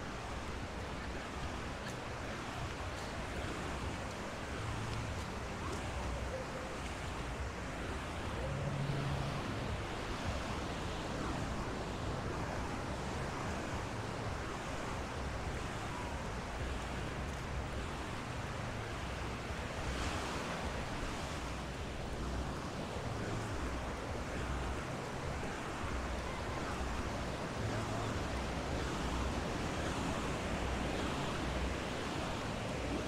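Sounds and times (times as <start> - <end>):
ocean waves washing onto beach: 0.0 - 33.0.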